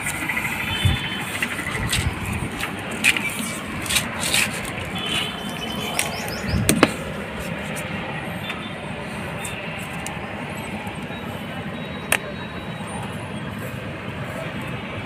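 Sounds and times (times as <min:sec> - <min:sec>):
tape tearing and clicking: 0:01.8 - 0:05.3.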